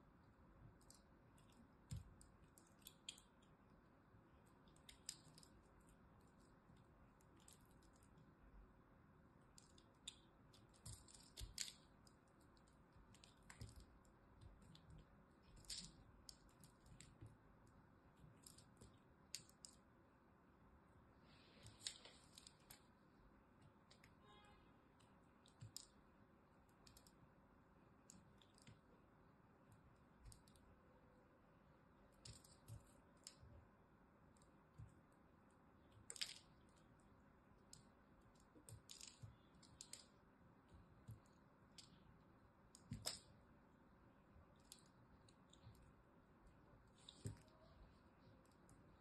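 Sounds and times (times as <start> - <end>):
knife carving crumbly soap: 0.0 - 20.0, 29.6 - 30.8, 32.0 - 43.6.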